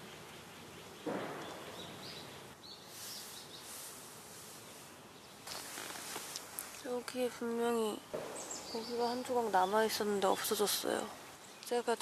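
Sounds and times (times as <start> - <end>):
faint high hiss: 0.0 - 12.0
soft rustle: 1.6 - 11.8.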